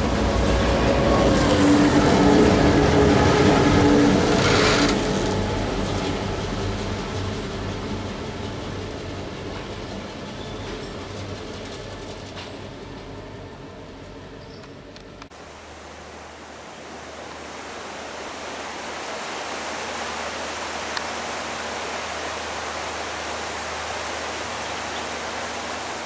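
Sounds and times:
diesel locomotive engine running: 0.0 - 16.2.

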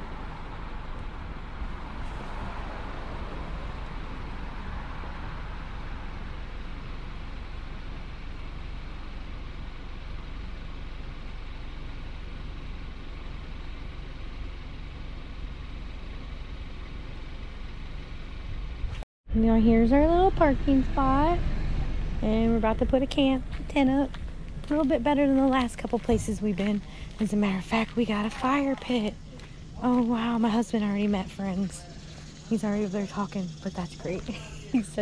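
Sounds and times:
vehicle passing: 0.0 - 8.2, 17.4 - 35.0
highway traffic noise: 0.0 - 35.0
low steady rumble: 0.0 - 35.0.

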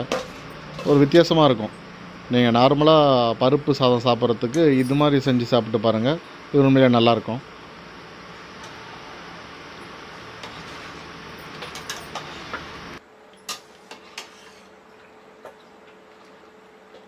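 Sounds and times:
ladle scraping and clinking pot: 13.5 - 14.8.

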